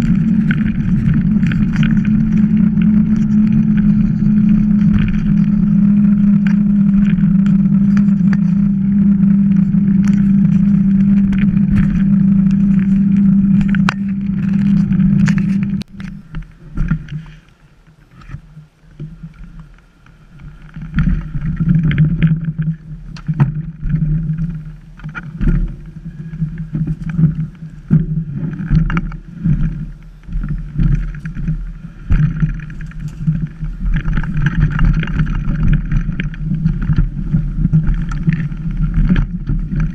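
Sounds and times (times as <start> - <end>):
bike rolling over loose rocks: 0.0 - 39.9
bike tyres and wind drone: 0.0 - 39.9.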